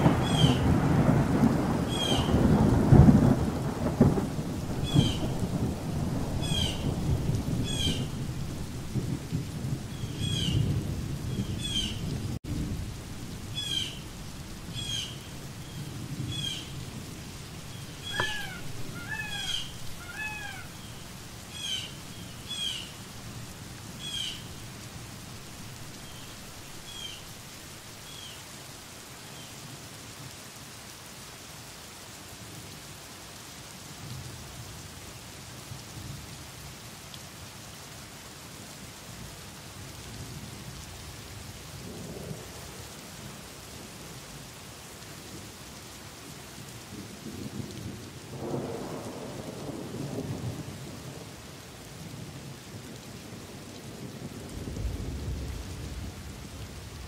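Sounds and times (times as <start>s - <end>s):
low rolling thunder: 0.0s - 28.1s, 46.9s - 51.3s, 53.3s - 57.0s
steady rain: 0.0s - 57.0s
animal lower calls: 17.8s - 22.9s
animal short high calls: 18.0s - 20.9s.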